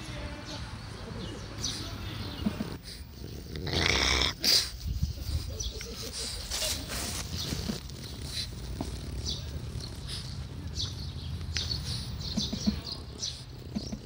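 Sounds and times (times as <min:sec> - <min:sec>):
dog breathing and snuffling: 0:01.6 - 0:11.0.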